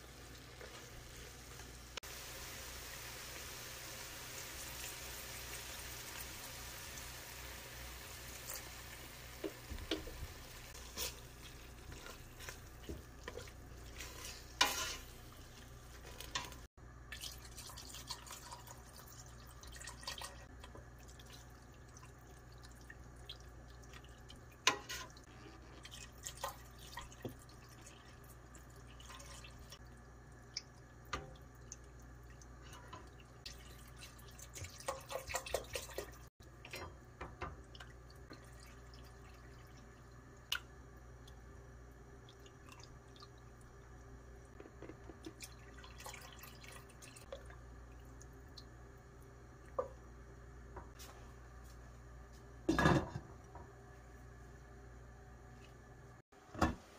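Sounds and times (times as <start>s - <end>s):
spatula knocking and scraping pot: 11.8s - 15.1s.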